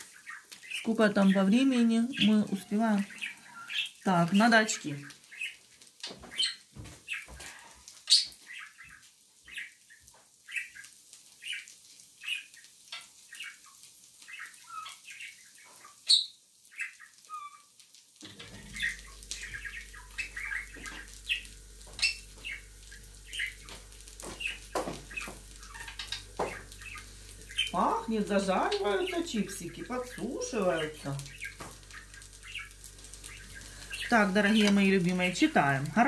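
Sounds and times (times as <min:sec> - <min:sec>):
small birds chirping: 0:00.0 - 0:36.0
steady low hum: 0:18.2 - 0:36.0.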